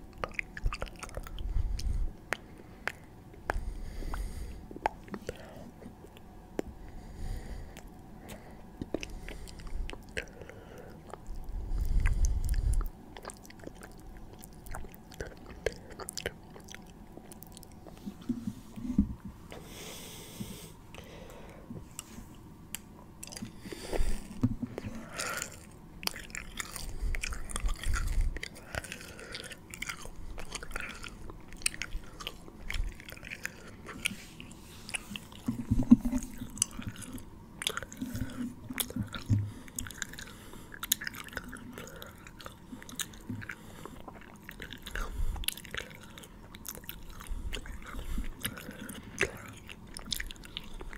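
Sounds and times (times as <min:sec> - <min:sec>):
lip and tongue clicks: 0:34.9 - 0:50.9.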